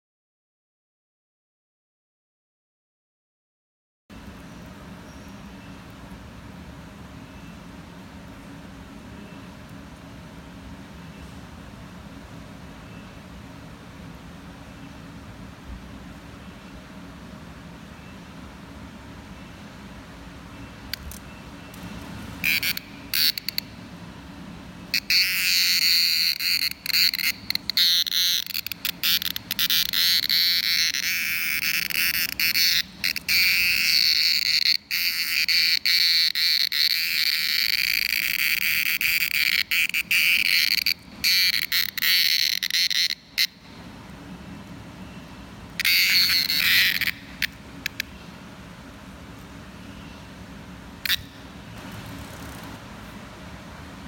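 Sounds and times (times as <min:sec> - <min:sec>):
cicada buzzing: 0:20.8 - 0:43.8, 0:45.7 - 0:48.5, 0:50.8 - 0:52.9.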